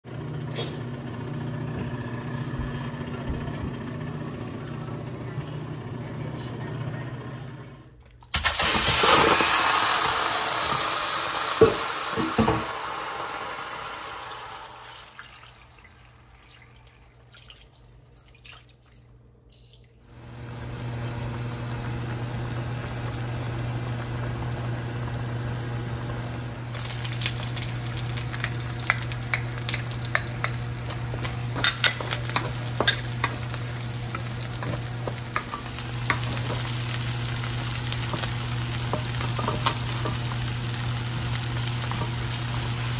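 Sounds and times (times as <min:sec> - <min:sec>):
meat sizzling in a pan: 0:08.6 - 0:14.9, 0:26.7 - 0:42.9
spatula stirring in pan: 0:26.8 - 0:42.9.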